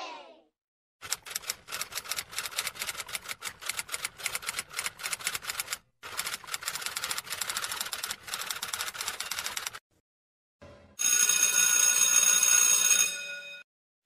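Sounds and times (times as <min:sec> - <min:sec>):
rapid irregular clicking: 0:01.0 - 0:09.8.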